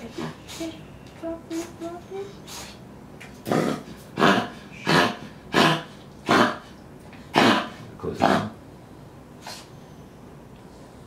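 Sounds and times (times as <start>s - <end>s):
dog coughing: 3.4s - 6.7s, 7.3s - 8.6s.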